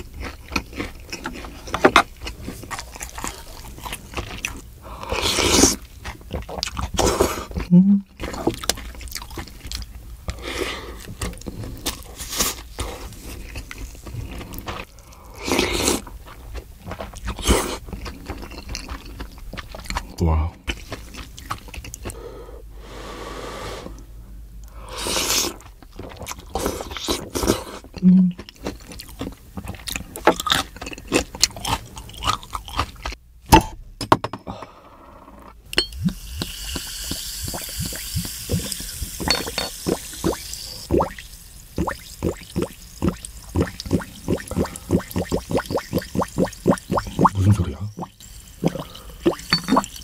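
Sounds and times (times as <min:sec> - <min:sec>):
person slurping soup: 0:05.0 - 0:05.8, 0:41.8 - 0:50.0
liquid bubbling and glugging: 0:35.9 - 0:50.0.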